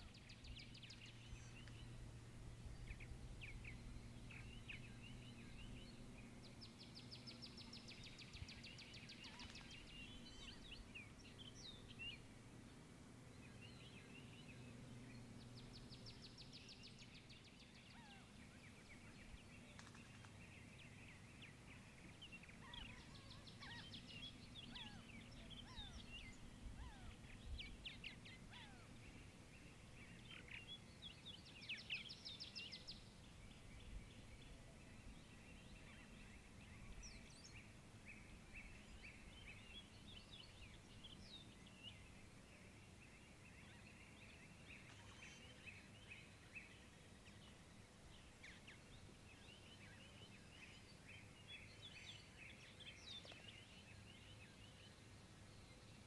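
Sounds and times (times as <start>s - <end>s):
faint steady high hiss: 0.0s - 56.0s
birds chirping and whistling: 22.6s - 28.7s.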